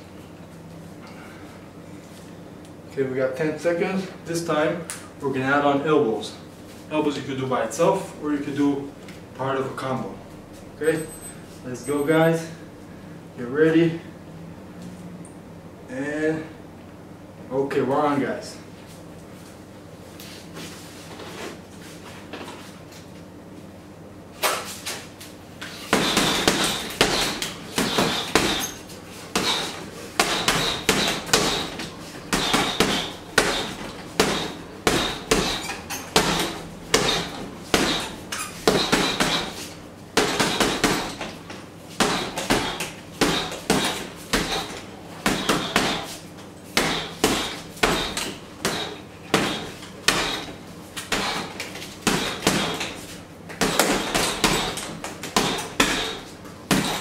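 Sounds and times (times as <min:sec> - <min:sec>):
punches hitting heavy bag: 0:25.9 - 0:39.6, 0:40.2 - 0:41.4, 0:42.0 - 0:53.0, 0:53.6 - 0:57.0.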